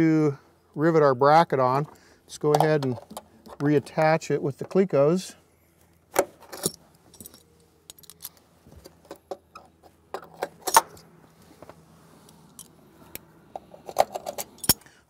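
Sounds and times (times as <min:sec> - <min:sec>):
metal fasteners clicking: 0:06.4 - 0:11.0, 0:12.4 - 0:14.9.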